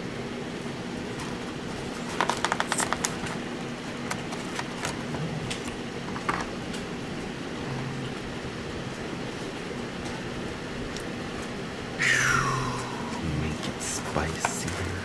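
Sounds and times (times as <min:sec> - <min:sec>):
steady low hum: 0:00.0 - 0:15.0
plastic cup clicking and crackling: 0:02.1 - 0:03.4.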